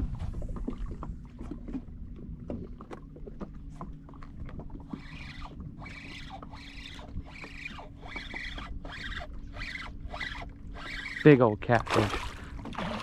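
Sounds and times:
fishing reel whirring: 0:04.7 - 0:11.6.

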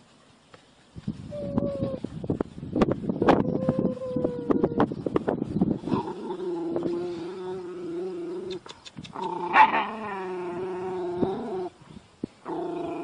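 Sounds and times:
dog growling: 0:05.9 - 0:11.8, 0:12.4 - 0:13.0.

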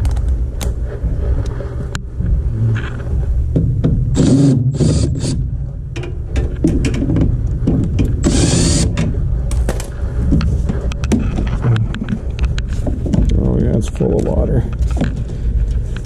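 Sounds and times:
steady low rumble: 0:00.0 - 0:16.0
cordless drill spinning: 0:04.2 - 0:05.4, 0:08.2 - 0:09.0.

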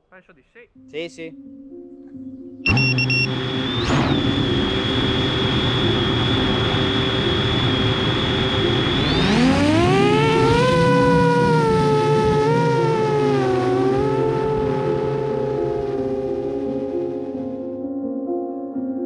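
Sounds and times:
quadcopter motors whining: 0:02.7 - 0:16.1.

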